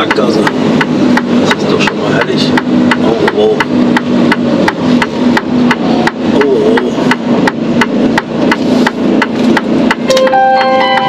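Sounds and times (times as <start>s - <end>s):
phone ringtone: 10.1s - 11.0s.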